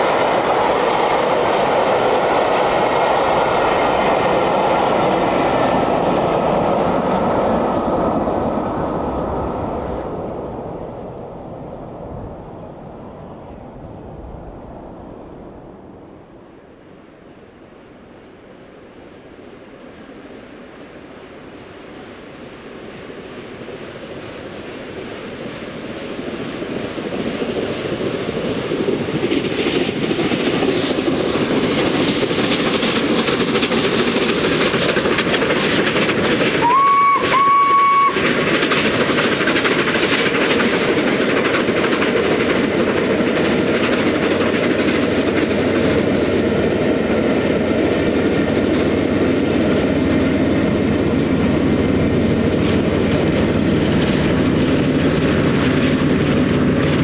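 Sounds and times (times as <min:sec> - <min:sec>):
steam locomotive exhaust: 0:26.8 - 0:57.0
steam whistle blasts: 0:36.6 - 0:38.3
carriages rumbling and clattering: 0:38.2 - 0:57.0.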